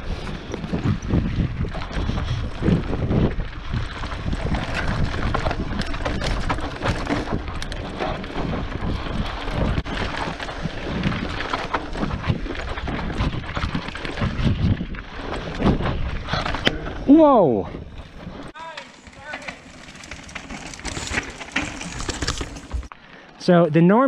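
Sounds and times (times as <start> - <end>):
wind on microphone: 0.0 - 18.6
bike rattling: 0.0 - 23.4.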